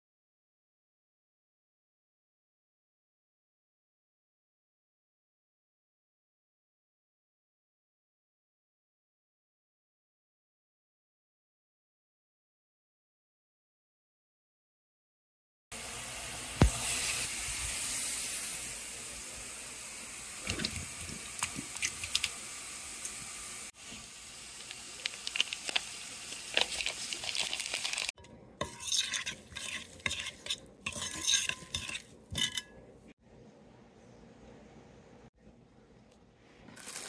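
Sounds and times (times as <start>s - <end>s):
roast sizzling in a pan: 15.8s - 32.7s, 36.8s - 37.0s
spoon scraping a bowl: 26.6s - 33.1s.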